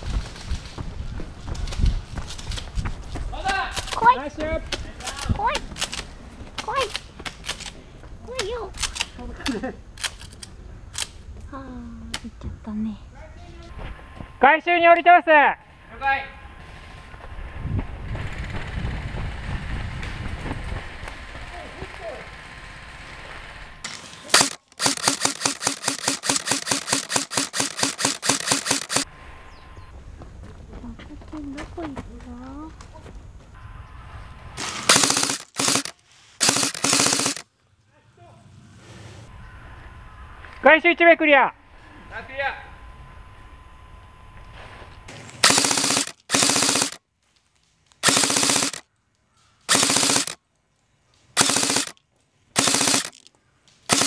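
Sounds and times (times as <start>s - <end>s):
airsoft gun shots: 24.2s - 29.0s, 34.6s - 37.4s, 45.4s - 47.0s, 48.0s - 48.8s, 49.7s - 50.4s, 51.4s - 52.0s, 52.6s - 53.2s.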